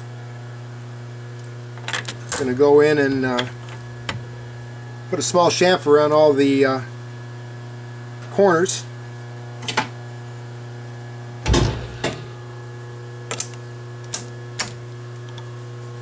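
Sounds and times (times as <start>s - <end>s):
lathe electrical hum: 0.0s - 16.0s
heavy thump: 11.4s - 12.4s.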